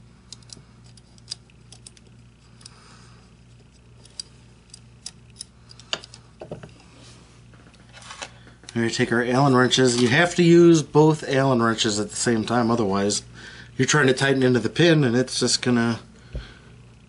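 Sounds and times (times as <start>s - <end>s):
faint low hum: 0.0s - 17.0s
small metal clicks: 0.3s - 2.8s.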